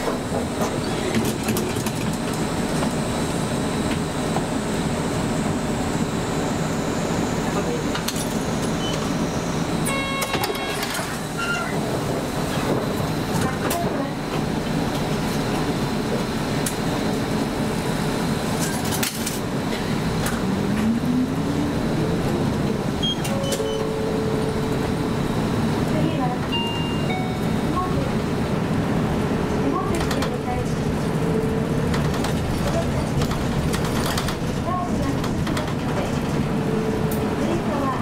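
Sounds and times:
bus engine running: 0.0s - 38.0s
road noise: 0.0s - 38.0s
short electronic beep: 9.9s - 10.8s, 23.0s - 24.7s.

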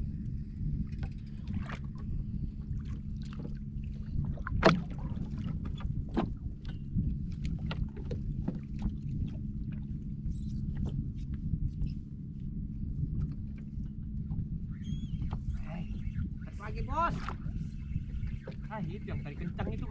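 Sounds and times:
low rumble: 0.0s - 19.9s
water lapping against boat hull: 0.0s - 19.9s
knocks on wooden boat: 4.5s - 5.0s.

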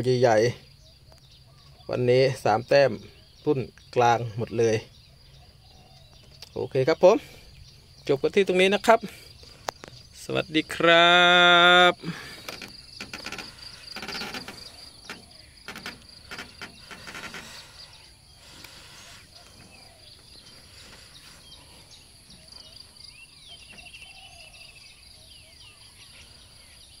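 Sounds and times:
birds chirping: 0.0s - 27.0s
insects trilling: 0.0s - 27.0s
knocks and rustles: 12.2s - 18.0s.

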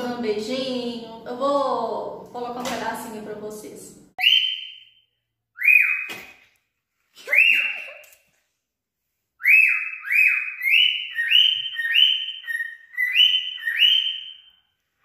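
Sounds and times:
cockatiel whistling: 4.2s - 4.9s, 5.6s - 6.2s, 7.3s - 8.0s, 9.4s - 14.6s.

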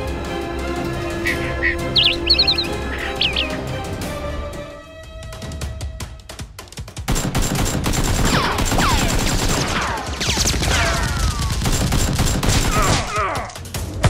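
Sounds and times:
automatic gunfire: 7.1s - 12.9s.

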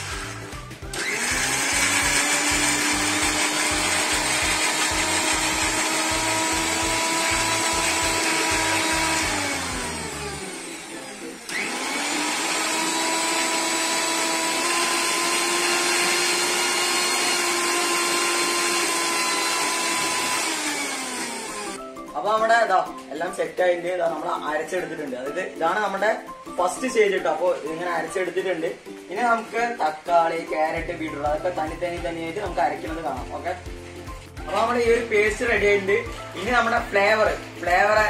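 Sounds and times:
mixer grinder running: 0.0s - 21.8s, 31.7s - 38.0s.

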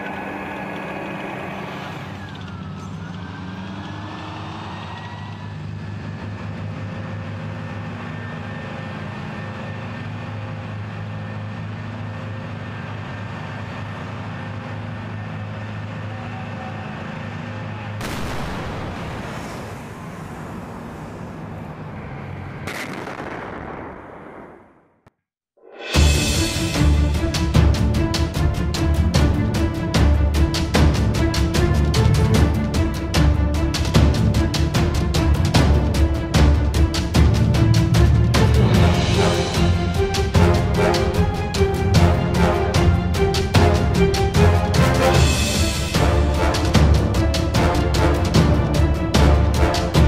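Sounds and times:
tracked vehicle diesel engine: 0.0s - 18.6s
engine whine: 0.0s - 23.1s, 25.9s - 50.0s.

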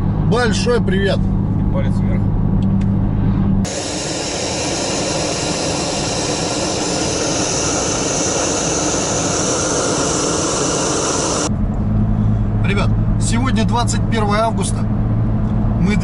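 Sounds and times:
gas burner flame hissing: 3.7s - 11.5s.

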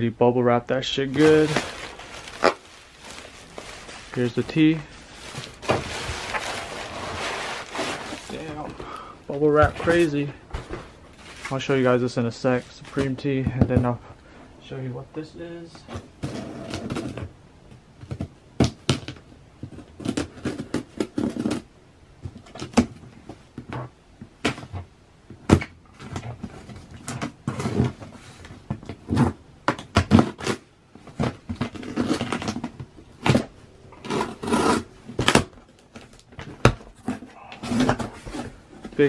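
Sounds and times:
cardboard rustling and scraping: 1.0s - 8.9s, 9.6s - 11.9s, 19.6s - 21.7s, 25.9s - 39.0s
packing tape being slit and pulled off: 1.2s - 4.3s, 5.3s - 8.4s, 29.1s - 30.6s, 31.3s - 32.7s, 33.3s - 36.2s.

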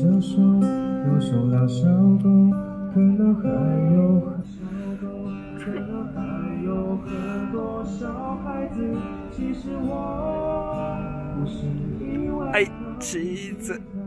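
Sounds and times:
acoustic guitar strummed chords: 0.0s - 14.0s.

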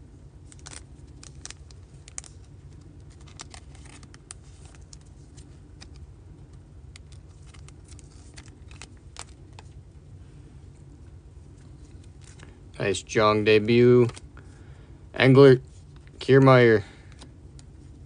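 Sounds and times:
steady low hum: 0.0s - 18.0s
plastic card sleeve crinkling: 0.4s - 9.8s, 10.7s - 12.7s, 13.6s - 14.4s.

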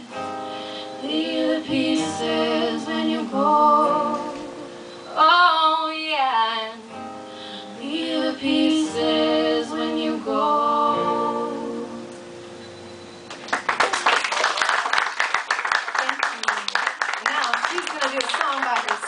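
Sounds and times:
acoustic guitar: 0.0s - 13.6s
women singing: 1.0s - 6.8s, 7.7s - 12.0s
audience clapping: 13.3s - 19.0s.

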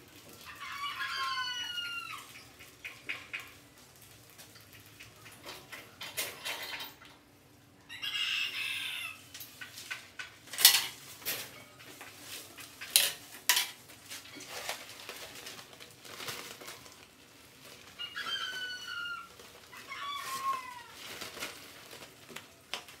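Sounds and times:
animal squeals: 18.0s - 21.0s.

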